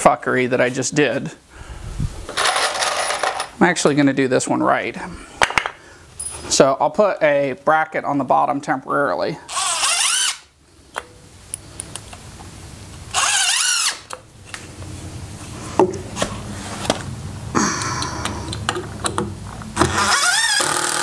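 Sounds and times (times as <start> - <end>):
cordless drill driving screws: 9.5 - 10.5, 13.1 - 14.2, 19.8 - 21.0.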